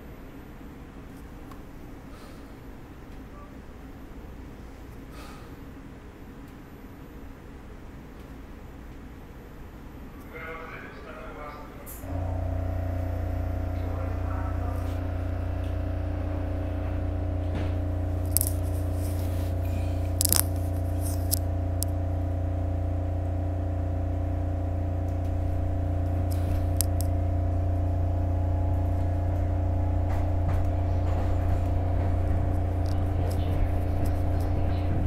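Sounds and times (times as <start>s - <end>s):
train car humming: 0.0s - 35.0s
short clicks and rattles: 18.2s - 19.2s, 20.0s - 21.9s.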